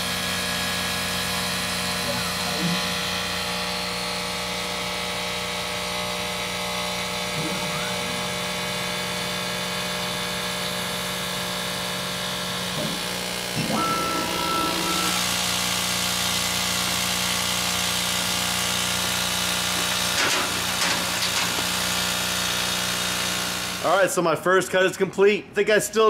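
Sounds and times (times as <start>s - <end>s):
laser cutter fans and pumps humming: 0.1s - 24.1s
brief high tone: 7.3s - 9.1s, 12.8s - 15.3s.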